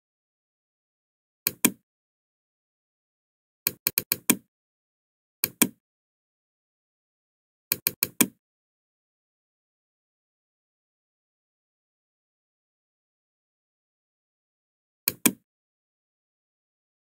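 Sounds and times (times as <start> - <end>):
computer mouse clicks: 1.5 - 1.8, 3.7 - 4.5, 5.4 - 5.8, 7.7 - 8.4, 15.1 - 15.4.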